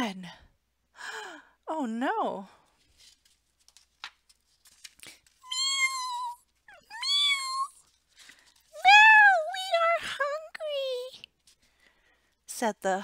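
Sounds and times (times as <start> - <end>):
woman imitating cat meows: 5.4 - 7.8.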